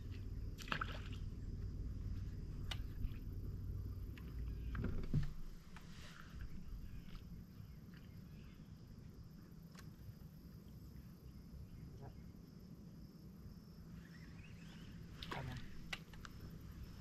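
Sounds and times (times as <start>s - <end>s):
low rumble: 0.0s - 7.8s
light clicks: 2.6s - 3.0s.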